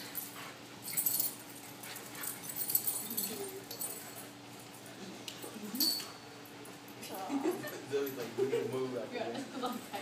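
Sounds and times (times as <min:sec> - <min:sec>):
paws scuffling and clicking on concrete: 0:00.0 - 0:07.2.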